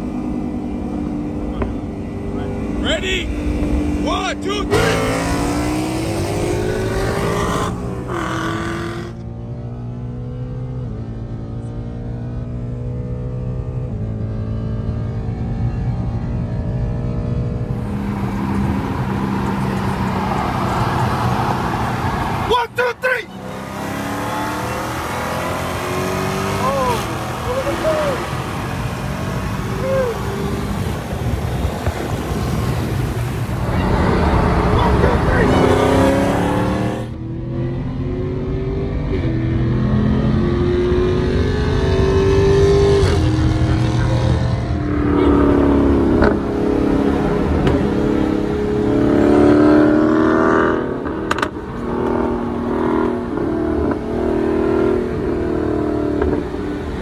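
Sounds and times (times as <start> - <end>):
car engine and road noise: 0.0 - 57.0
race car passing by: 17.7 - 22.6.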